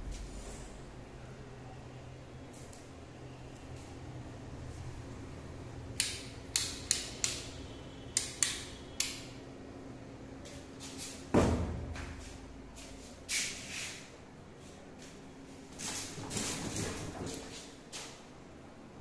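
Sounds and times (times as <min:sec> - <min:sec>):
loud full thump: 0:11.4 - 0:12.0.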